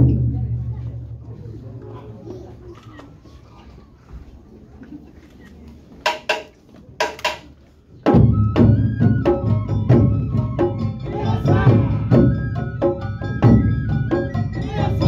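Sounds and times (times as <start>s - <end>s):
drums gong and flute playing: 8.1s - 15.0s.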